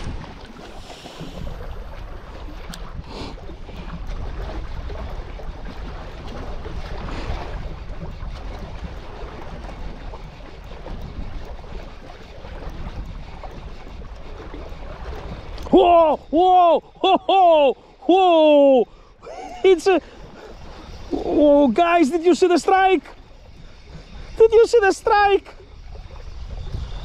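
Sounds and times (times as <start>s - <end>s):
wind noise on microphone: 0.0s - 16.0s, 23.1s - 27.0s
small waves on rocky shore: 0.0s - 27.0s.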